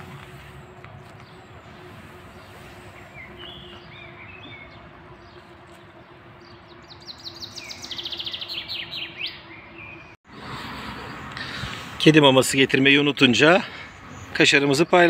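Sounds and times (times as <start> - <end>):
songbird chirps: 0.0 - 10.2, 10.8 - 15.0
descending bird trill: 3.0 - 10.2.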